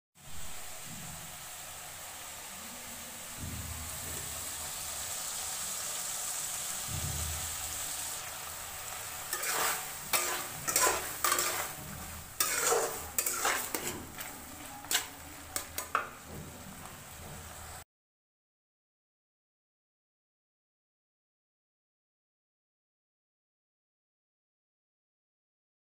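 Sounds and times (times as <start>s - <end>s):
curry sizzling in a pan: 0.2s - 17.8s
spoon scraping a metal pan: 7.7s - 17.5s.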